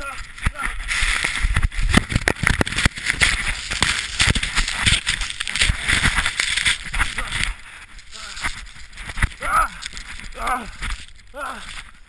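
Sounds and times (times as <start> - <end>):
snow and ice knocking helmet: 0.0 - 7.6.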